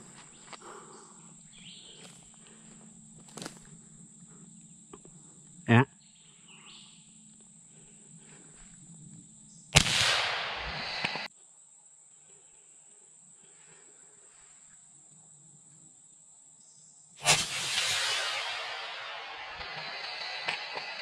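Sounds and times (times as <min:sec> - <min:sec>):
insects droning: 0:00.0 - 0:21.0
sudden loud crack and rush: 0:09.8 - 0:11.3, 0:17.2 - 0:21.0.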